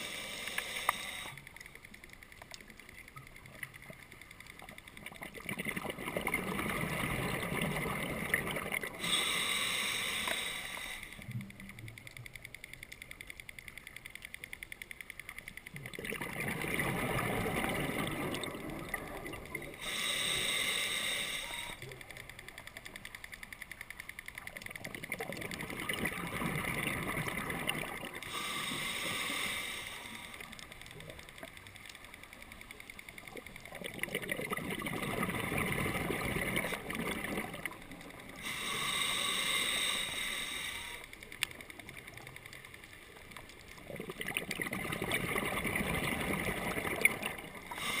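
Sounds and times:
diver breathing through regulator: 0.0 - 1.4, 8.9 - 11.3, 19.8 - 21.8, 28.2 - 30.6, 38.2 - 41.2, 47.7 - 48.0.

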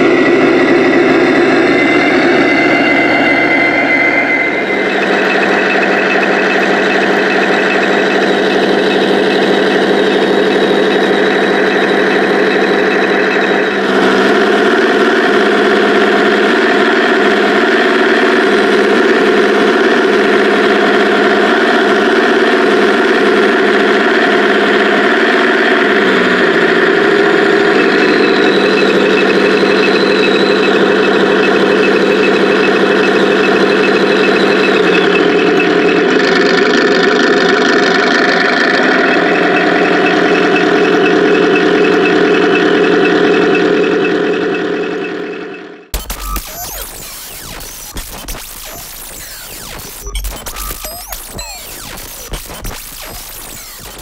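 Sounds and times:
simulated tank engine: 0.0 - 54.0.

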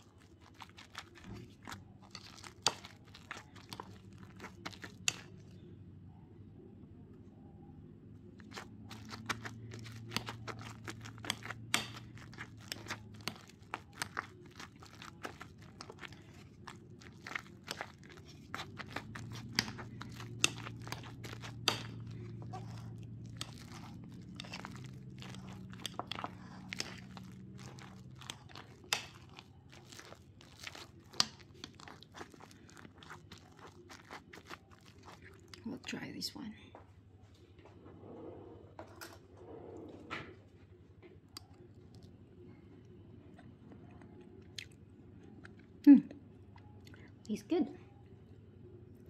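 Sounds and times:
potato masher squelching: 0.0 - 5.5, 8.4 - 36.0.

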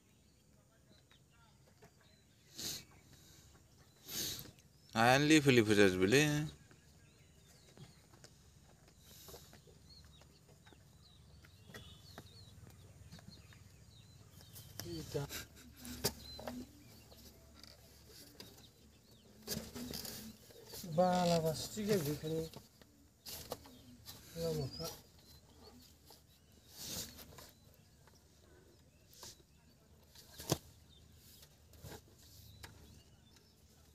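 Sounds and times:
faint high bird chirps: 9.0 - 33.9.

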